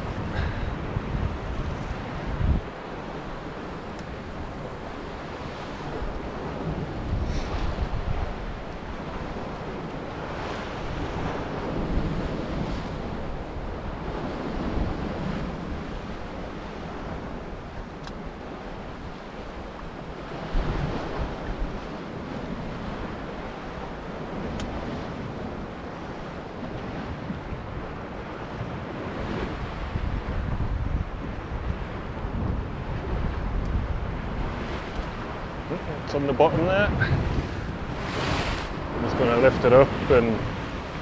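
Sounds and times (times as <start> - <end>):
wind buffeting microphone: 0.0 - 41.0
sea swell breaking against rocks: 36.4 - 41.0.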